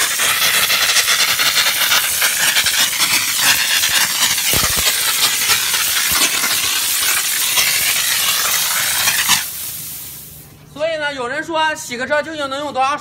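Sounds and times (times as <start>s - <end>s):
water spattering: 0.0s - 10.3s
steam gun hissing: 0.0s - 10.4s.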